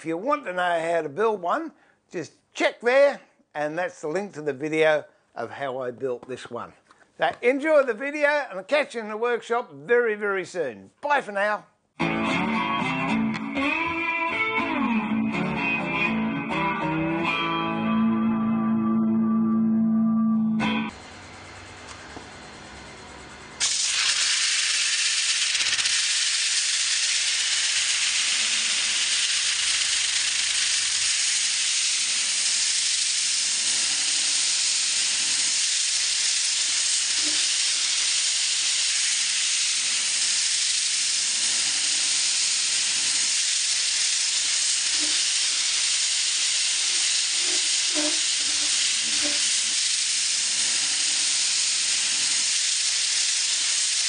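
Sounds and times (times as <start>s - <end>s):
steady hiss of sanding: 23.6s - 54.0s.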